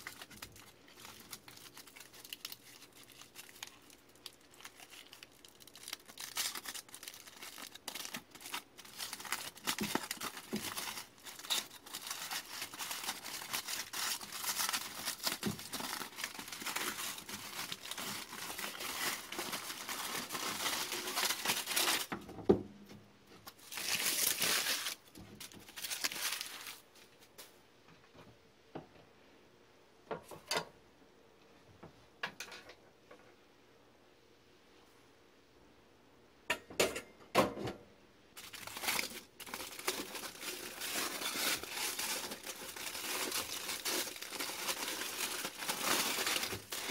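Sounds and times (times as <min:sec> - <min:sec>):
aluminium foil crinkling: 0:00.0 - 0:22.2, 0:23.4 - 0:27.1, 0:38.4 - 0:46.9.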